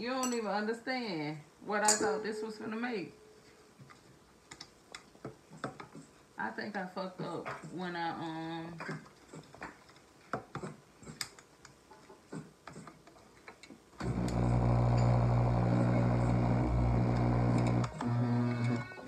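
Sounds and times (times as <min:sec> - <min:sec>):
electric juicer motor grinding: 0:14.0 - 0:19.0.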